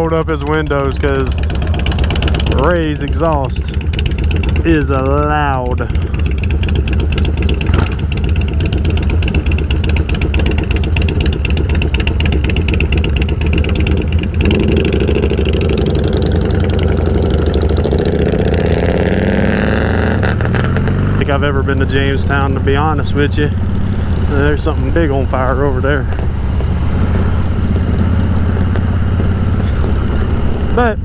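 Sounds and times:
motorcycles idling and accelerating: 0.0 - 31.0.

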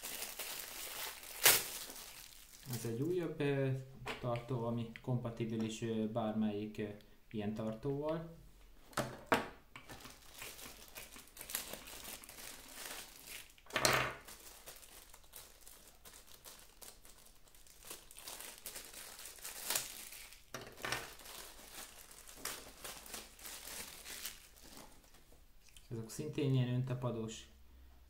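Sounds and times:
plastic bag crinkling: 0.0 - 3.1, 9.9 - 25.9.

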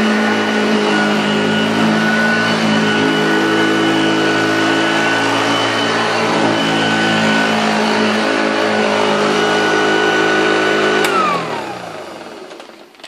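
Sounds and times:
vacuum cleaner running: 0.0 - 12.8
motor winding down whine: 0.2 - 12.4
vacuum cleaner switch click: 11.0 - 11.4.

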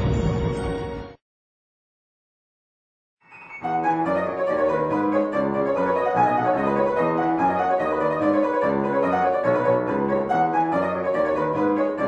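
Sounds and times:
instrumental strings and piano music: 3.2 - 12.0.

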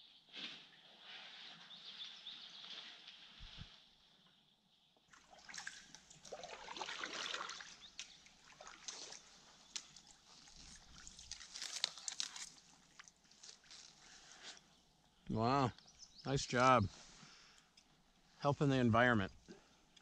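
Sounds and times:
paddle splashing water: 5.1 - 11.5
water dripping off paddle: 5.2 - 10.2.

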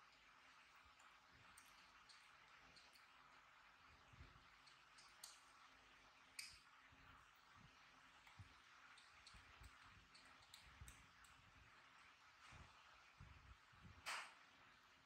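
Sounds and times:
faint small clicks: 0.9 - 3.4, 4.5 - 5.6, 6.3 - 6.7, 8.2 - 11.4.

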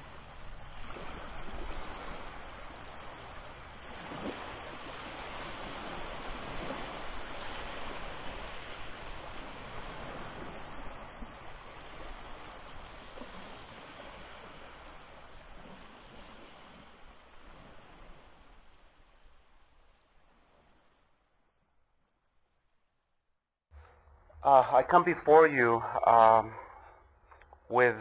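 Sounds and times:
ocean surf washing onto beach: 0.0 - 21.0.

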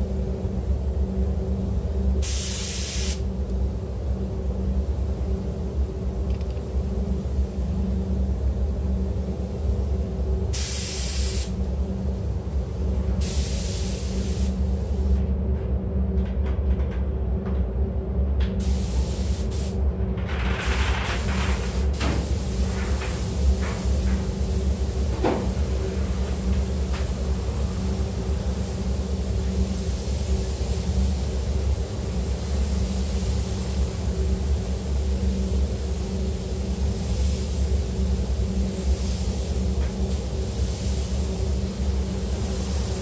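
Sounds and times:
ventilation fans humming: 0.0 - 43.0
spray gun hissing: 2.2 - 3.2, 9.5 - 11.6, 12.6 - 15.2, 18.6 - 19.8, 21.1 - 43.0.

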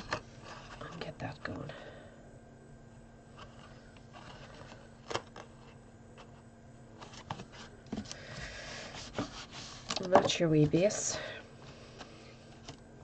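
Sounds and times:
card rustling and creasing: 0.0 - 1.0, 3.3 - 11.0.

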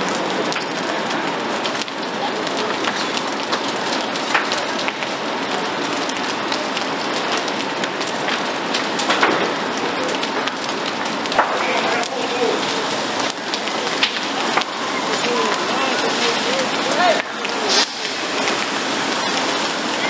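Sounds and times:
fire burning and crackling: 0.0 - 20.0.

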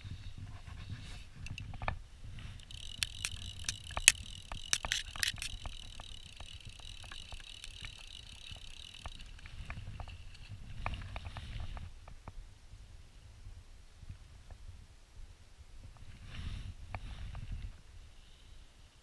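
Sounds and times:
fishing reel ratchet buzzing: 2.5 - 9.6.

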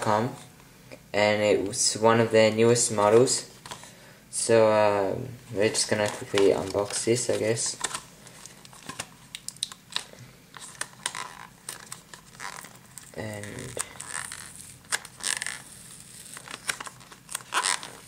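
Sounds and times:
card packaging rustling: 5.5 - 18.0
card tearing: 5.8 - 18.0.

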